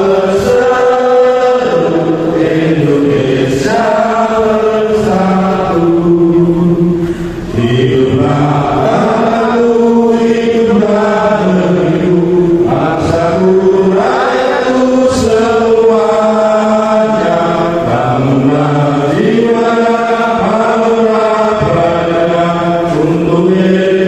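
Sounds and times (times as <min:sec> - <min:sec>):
voices chanting: 0:00.0 - 0:24.0.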